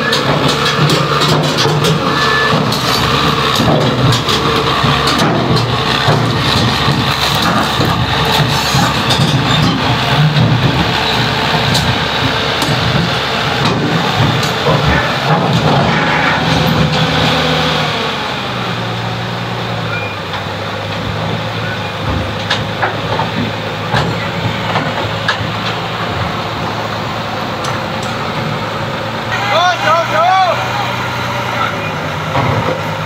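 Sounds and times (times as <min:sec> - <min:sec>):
crane diesel engine running: 0:00.0 - 0:33.0
steel tracks clanking: 0:00.0 - 0:33.0.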